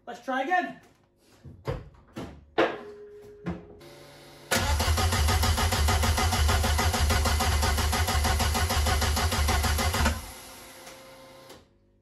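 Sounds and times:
engine cranking on starter motor: 4.5s - 11.6s.

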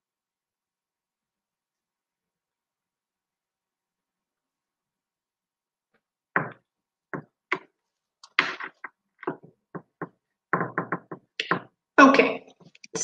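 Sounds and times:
short knocks and taps: 6.3s - 11.8s.

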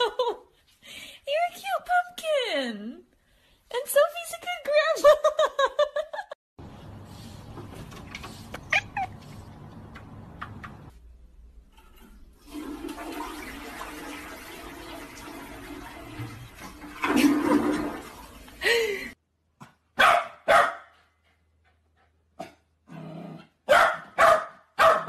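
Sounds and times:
toilet flushing: 11.8s - 19.2s
dog barking: 20.0s - 21.0s, 23.6s - 25.0s.

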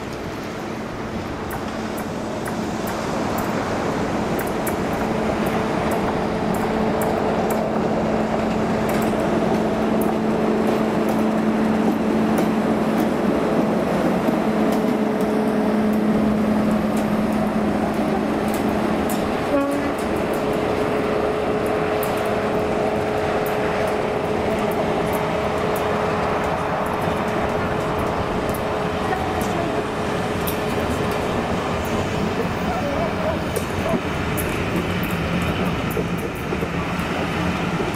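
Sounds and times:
coaches clicking over rails: 0.0s - 37.9s
diesel locomotive engines whining: 0.0s - 37.9s.

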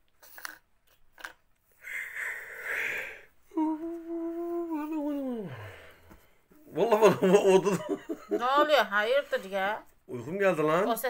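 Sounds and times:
person sniffing: 1.8s - 3.3s
person yawning: 1.8s - 6.0s
hummed groan: 3.5s - 5.8s.

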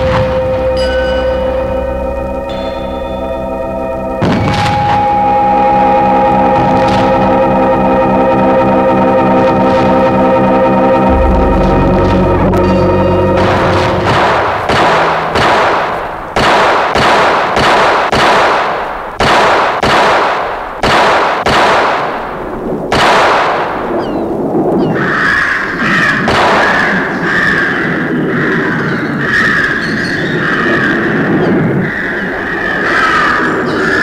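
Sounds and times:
high wavering squeal: 0.0s - 16.4s
hammer striking an anvil: 11.1s - 18.0s.

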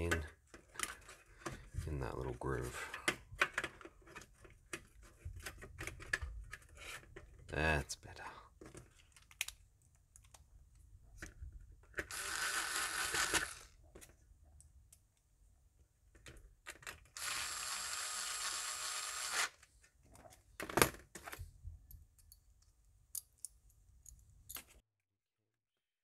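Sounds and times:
electric screwdriver running: 12.1s - 13.7s, 17.2s - 19.6s.

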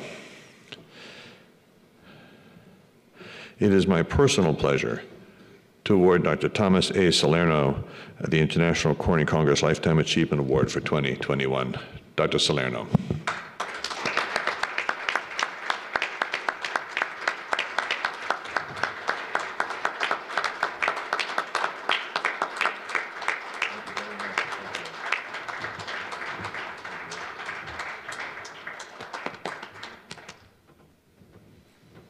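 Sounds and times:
audience applauding: 13.2s - 30.6s.

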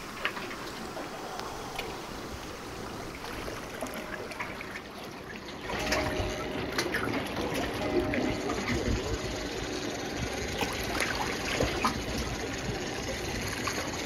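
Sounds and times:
lake water lapping: 0.2s - 7.8s.

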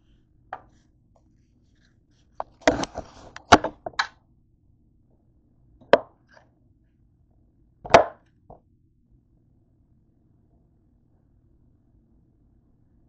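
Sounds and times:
knife chopping on counter: 7.9s - 8.2s.

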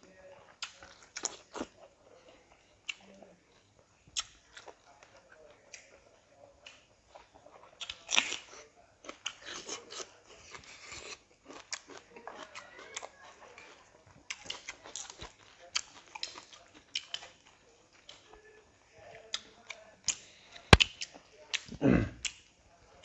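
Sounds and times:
person chewing food: 0.0s - 23.0s
wet mouth clicks: 20.1s - 22.4s.

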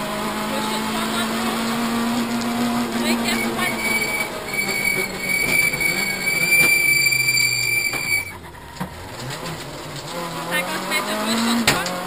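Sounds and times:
rally car engine from cabin: 0.0s - 12.0s
steady high whine: 2.2s - 8.4s.

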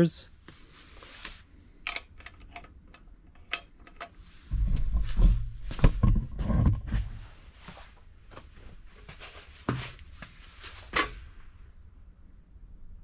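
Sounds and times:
metal clicks and taps: 1.8s - 4.2s
rumbling handling noise with knocks: 1.8s - 11.3s.

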